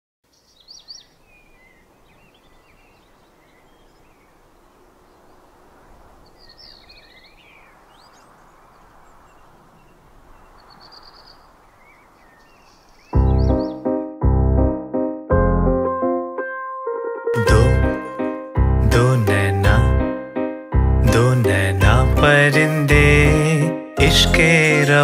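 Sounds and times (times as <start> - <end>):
birds chirping and trilling: 0.2 - 14.0.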